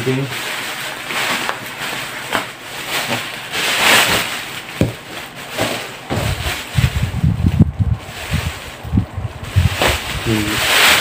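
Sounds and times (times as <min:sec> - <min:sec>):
plastic wrapping crinkling: 0:00.0 - 0:11.0
dull thumps of package handling: 0:02.3 - 0:07.0.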